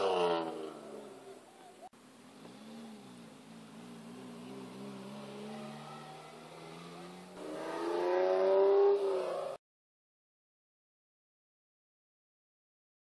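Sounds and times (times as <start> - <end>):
car engine revving: 0.0 - 9.6.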